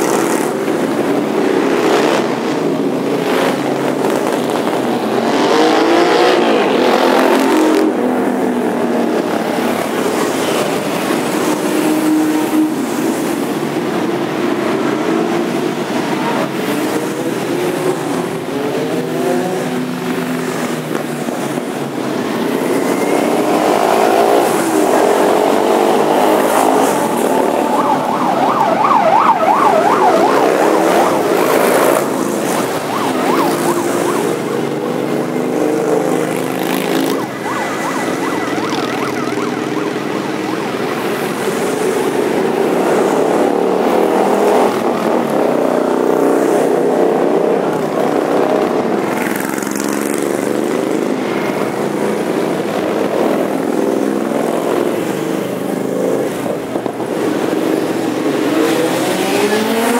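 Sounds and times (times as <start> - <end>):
motorcycles riding past: 16.0 - 59.9.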